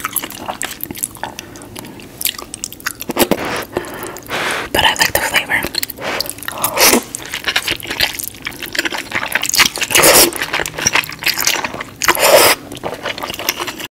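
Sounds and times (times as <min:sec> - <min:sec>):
wet mouth sounds: 0:00.0 - 0:13.9
noodles slurped: 0:06.1 - 0:13.9.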